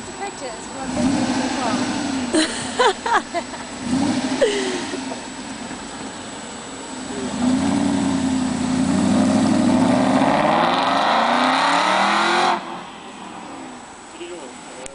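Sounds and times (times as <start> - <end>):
car engine accelerating: 0.0 - 14.9.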